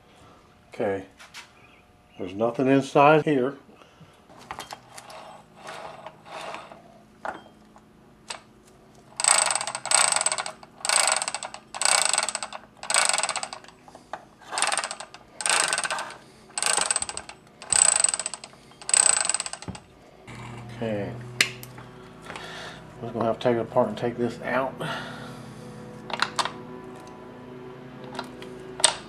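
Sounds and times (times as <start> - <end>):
transmission gears rattling and clicking: 8.3 - 19.9, 28.0 - 29.0.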